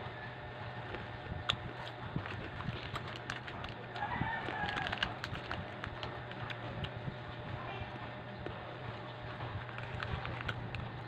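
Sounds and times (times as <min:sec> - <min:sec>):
plastic wrapper crackling: 0:01.5 - 0:07.0, 0:09.5 - 0:11.0
rooster crowing: 0:03.9 - 0:05.2.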